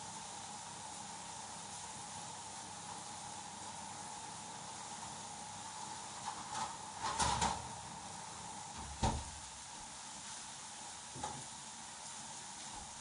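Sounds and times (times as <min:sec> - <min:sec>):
steady hiss: 0:00.0 - 0:13.0
metal oven tray clattering: 0:06.2 - 0:07.7
oven door shutting: 0:06.2 - 0:07.8, 0:08.7 - 0:09.5.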